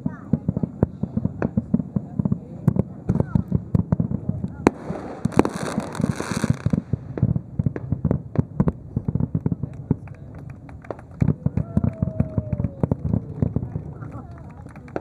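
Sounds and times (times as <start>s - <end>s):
distant fireworks bangs: 0.0s - 15.0s
fireworks crackling hiss: 0.0s - 15.0s.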